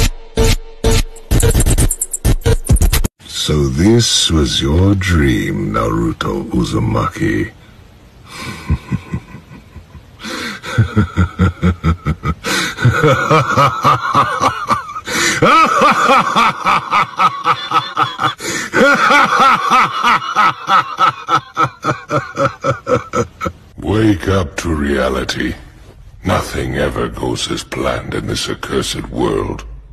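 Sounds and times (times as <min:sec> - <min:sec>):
person laughing: 0:08.3 - 0:23.7.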